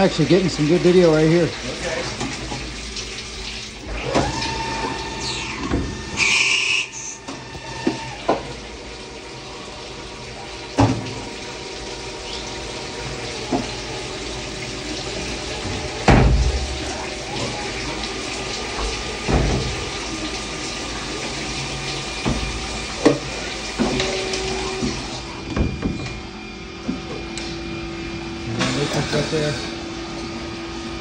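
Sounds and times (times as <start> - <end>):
cutting oil splashing: 0.0 - 25.4
machine hum: 0.0 - 31.0
sharp machine knocks: 16.0 - 16.8.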